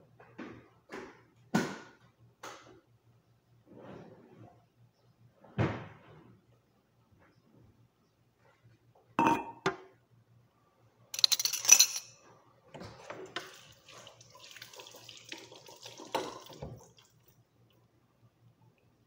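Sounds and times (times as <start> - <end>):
crockery clunking: 9.2 - 9.8
tap water running: 13.0 - 17.3.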